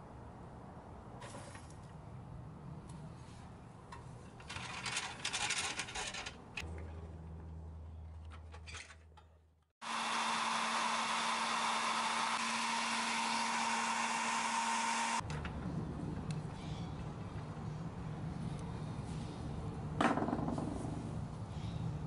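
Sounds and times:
toy truck clicks and rattles: 4.4s - 6.7s
hot-air blower rushing: 9.8s - 15.2s.

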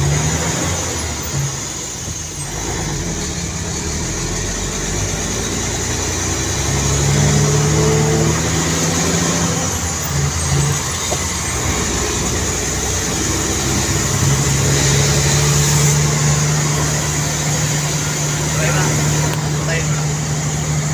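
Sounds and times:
tyre and road noise: 0.0s - 20.9s
vehicle engine running: 0.0s - 20.9s.

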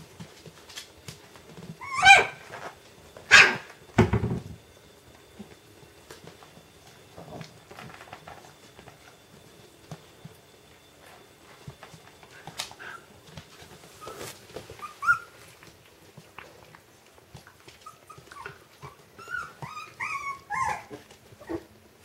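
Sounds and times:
faint ticks and shuffling: 0.0s - 22.0s
dog barking: 2.0s - 2.4s, 3.3s - 3.7s.

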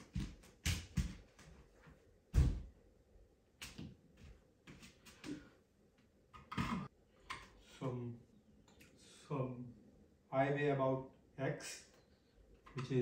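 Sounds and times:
heavy thump: 2.4s - 2.7s.

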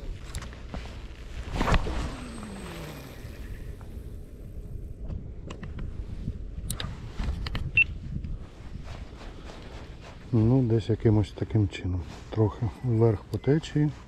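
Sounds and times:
line whirring off reel: 1.5s - 4.6s.

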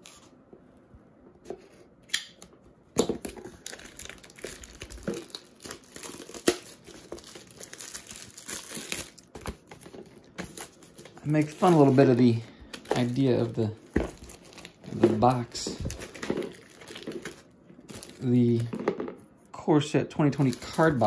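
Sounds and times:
plastic wrap crinkling: 3.0s - 18.8s, 20.3s - 21.0s.

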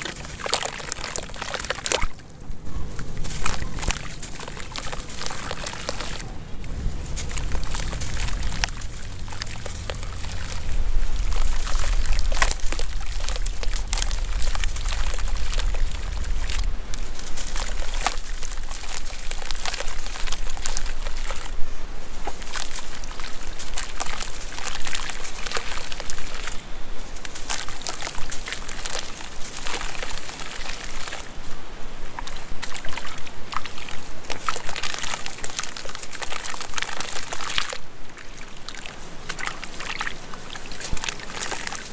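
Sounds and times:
dry clay crumbling: 0.0s - 31.4s, 32.2s - 41.9s
water sloshing and dribbling: 0.0s - 41.9s
low rumble: 2.2s - 26.6s.

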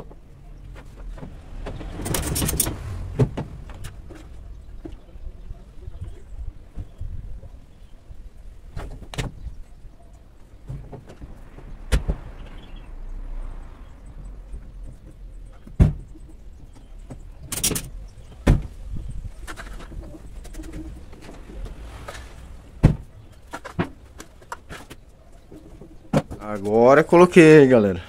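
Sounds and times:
brief scraping rush: 0.9s - 4.5s, 20.5s - 23.5s.

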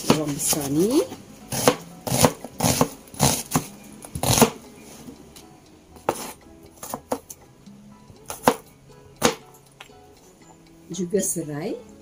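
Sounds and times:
knife cutting onion on plastic board: 1.5s - 4.6s, 6.0s - 7.3s, 8.3s - 8.6s.

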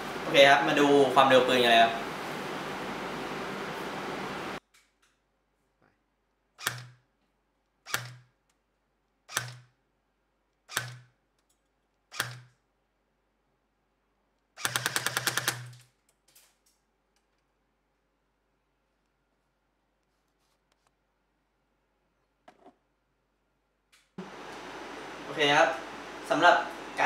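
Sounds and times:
airsoft gun full-auto burst: 14.6s - 15.8s.

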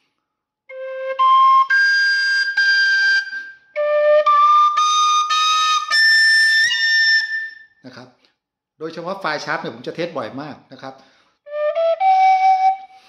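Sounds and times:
flute playing held notes: 0.7s - 7.6s, 11.5s - 13.0s.

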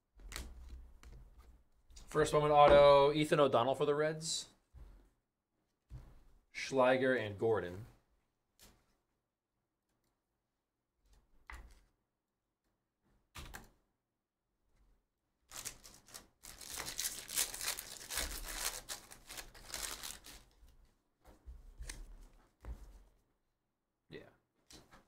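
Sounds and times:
cards and foil wrapper rustling: 15.5s - 20.6s.

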